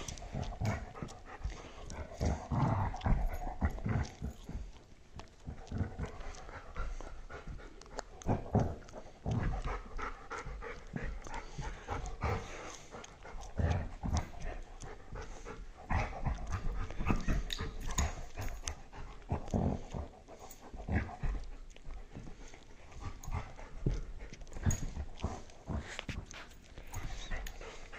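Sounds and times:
dog panting: 0.0 - 27.9
paws thumping on carpet: 0.0 - 27.9.

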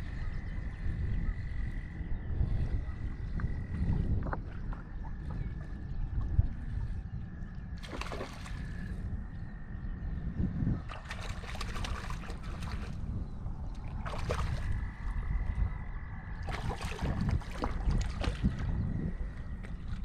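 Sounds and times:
wind on microphone: 0.0 - 20.0
fish splashing at surface: 7.8 - 8.6, 16.4 - 18.5.

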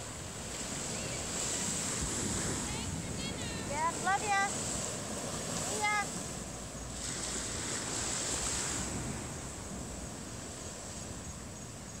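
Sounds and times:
ocean surf washing onto beach: 0.0 - 12.0.

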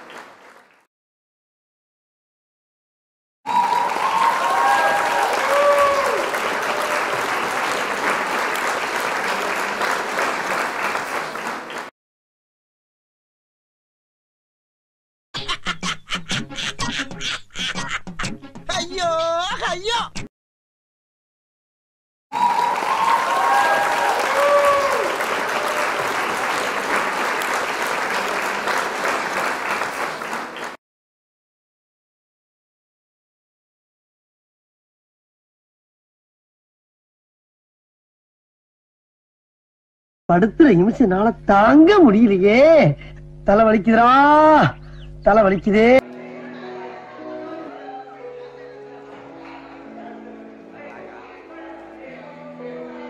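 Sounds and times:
audience clapping: 0.0 - 0.9, 3.5 - 11.9, 22.4 - 30.8.

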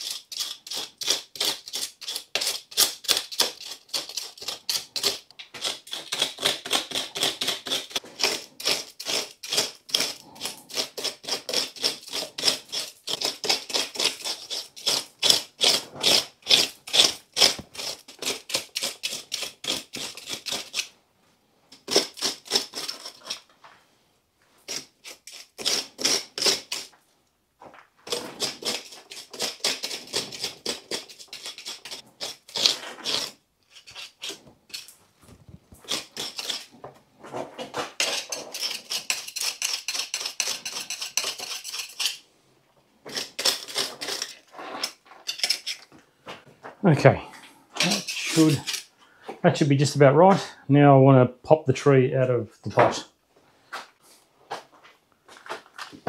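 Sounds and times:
sickle scraping roots in pot: 28.0 - 42.2, 43.1 - 45.9, 47.8 - 48.9.

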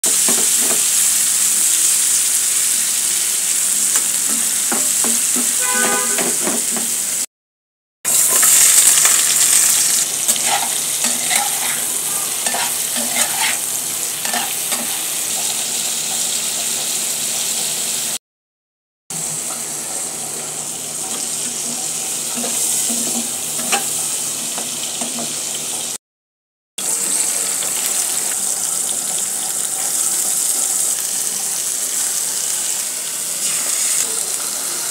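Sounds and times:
food sizzling in oil: 0.0 - 7.3, 8.1 - 18.2, 19.2 - 26.0, 26.8 - 34.9
metal spatula scraping pan: 5.4 - 6.9, 10.3 - 15.0.

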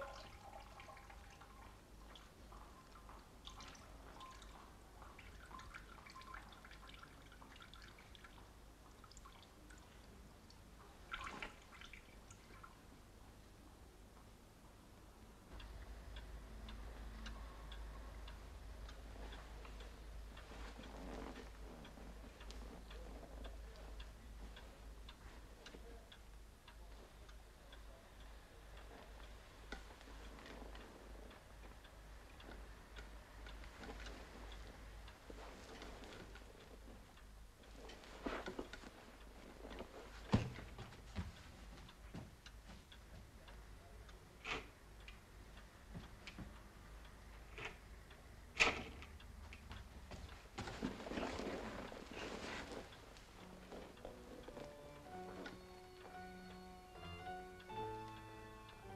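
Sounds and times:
wall clock ticking: 0.0 - 58.9.

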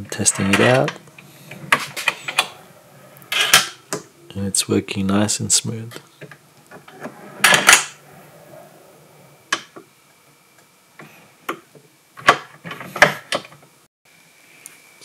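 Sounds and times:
drawer slides rolling rattle: 0.1 - 3.9, 6.6 - 9.7.

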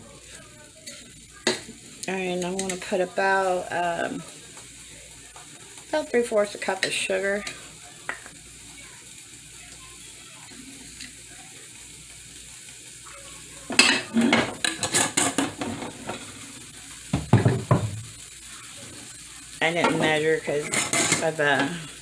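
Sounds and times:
pot of water hissing on burner: 0.0 - 22.0
spoon clinking and scraping pot: 13.7 - 16.2, 19.8 - 21.4
dull knock: 17.2 - 18.0.

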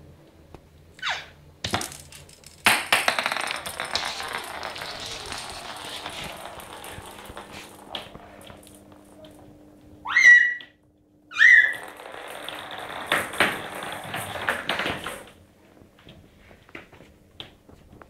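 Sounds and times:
plastic ball knocking on floor: 1.6 - 9.4, 11.7 - 15.4
ball rolling with rattling patter: 1.6 - 9.9, 11.4 - 18.0.

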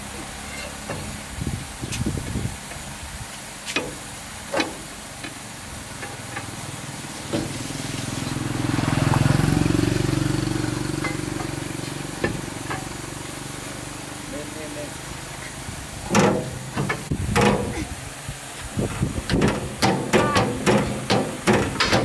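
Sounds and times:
motorbike engine passing: 6.1 - 15.4
lug wrench clinking on lug nuts: 19.4 - 22.0.

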